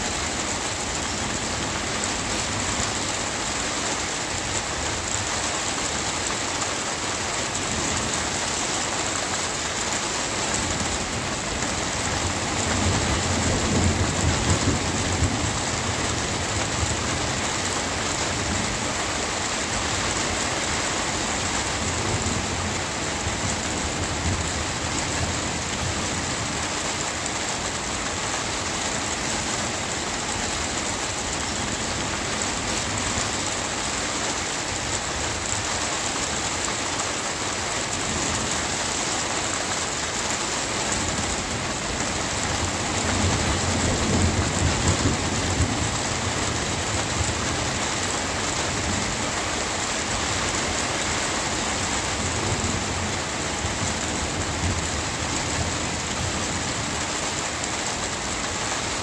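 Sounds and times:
rain pattering: 0.0 - 59.0
thunder rumbling: 41.1 - 49.4.

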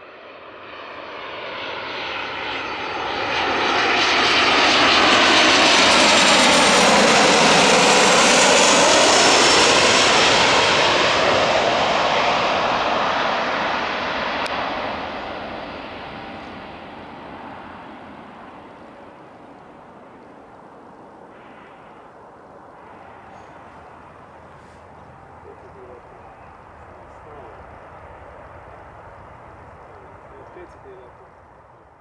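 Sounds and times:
jet airliner flying past: 0.0 - 32.0.

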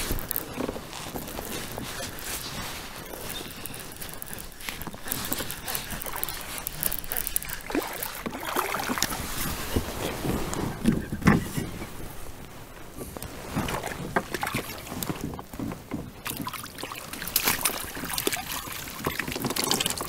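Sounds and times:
water sloshing and splashing: 0.0 - 12.2, 13.2 - 20.0.

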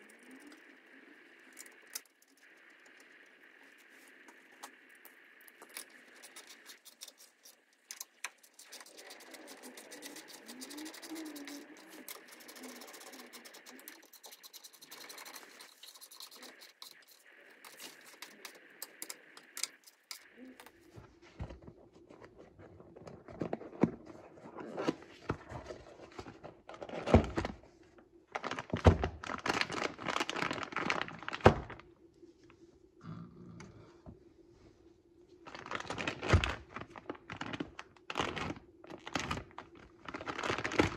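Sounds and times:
packaging crinkling: 0.0 - 20.5, 28.3 - 31.8, 35.4 - 40.9.

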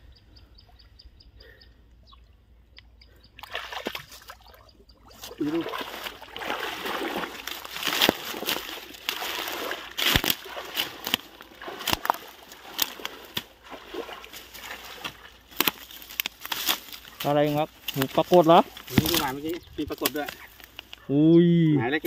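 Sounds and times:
muddy water splashing: 2.1 - 21.1
sharp water slaps: 3.4 - 17.0, 17.8 - 19.4.

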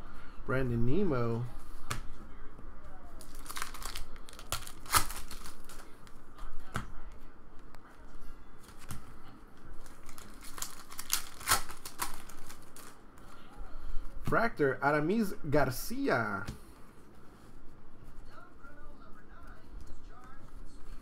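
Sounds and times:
foil wrappers crackling and ripping: 3.2 - 6.0, 9.8 - 13.0
cards handled: 3.2 - 6.8, 9.7 - 13.3.

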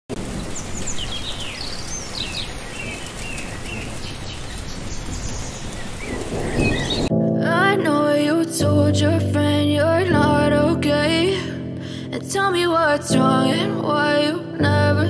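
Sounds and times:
birds chirping and singing: 0.3 - 7.1.

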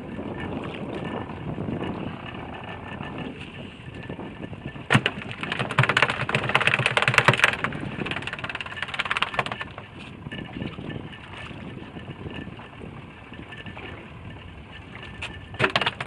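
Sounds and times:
fishing reel clicking and rattling: 0.2 - 11.0.

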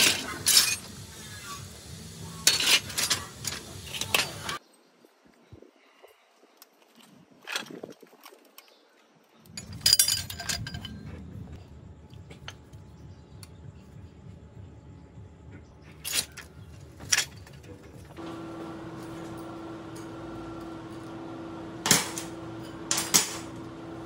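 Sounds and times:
scrap metal clanking: 2.4 - 4.6, 17.0 - 24.0
steady hum: 18.1 - 24.0.

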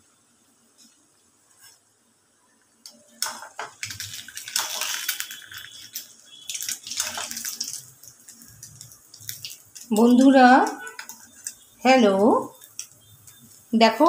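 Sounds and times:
food sizzling in hot oil: 3.1 - 14.0.

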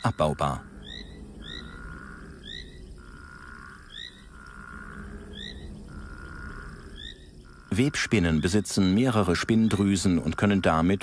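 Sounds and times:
steady high drone: 0.3 - 8.5.

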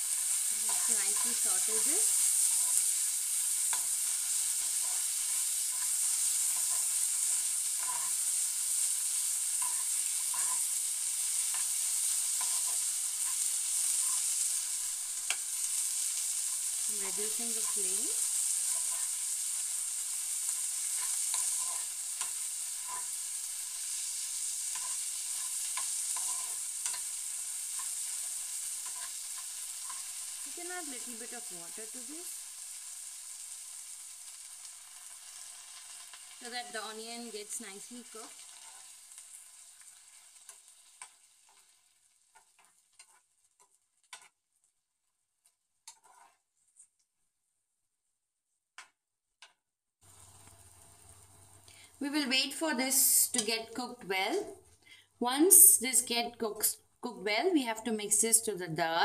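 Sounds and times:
onions sizzling in hot oil: 0.0 - 46.5, 50.0 - 59.0
metal spatula scraping pan: 0.1 - 32.0, 38.0 - 41.7, 42.3 - 44.3, 45.8 - 46.5.

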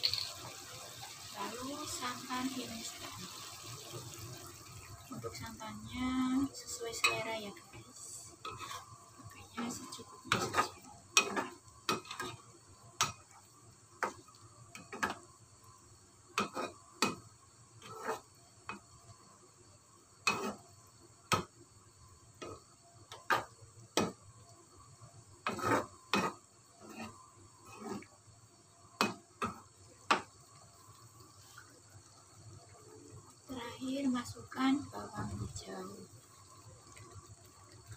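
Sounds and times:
spatula scraping a pan: 8.3 - 9.0, 9.6 - 13.2, 16.4 - 17.2, 17.8 - 18.8, 20.2 - 20.7, 25.4 - 28.2.

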